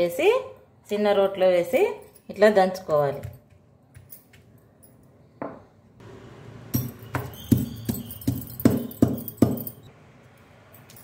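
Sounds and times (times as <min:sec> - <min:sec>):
stone pestle pounding in mortar: 0:06.8 - 0:09.7.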